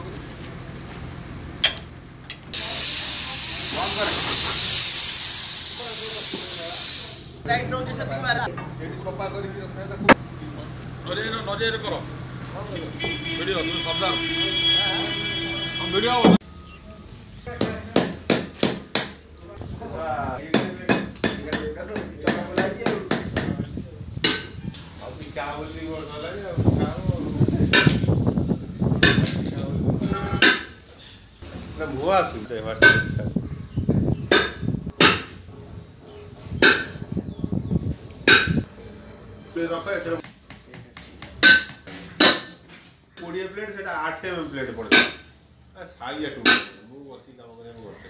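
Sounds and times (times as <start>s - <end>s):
sharp metallic knocks: 34.3s - 35.4s.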